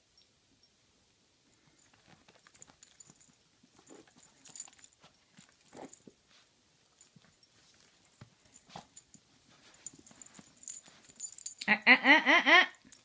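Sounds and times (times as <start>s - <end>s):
dog rustling on blanket: 1.9s - 11.5s.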